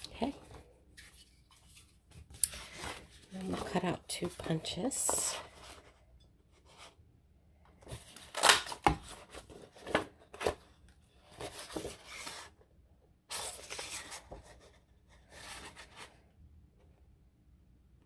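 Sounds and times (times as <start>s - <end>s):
paper rustling and scraping: 0.2s - 6.0s, 11.2s - 12.6s, 13.3s - 16.2s.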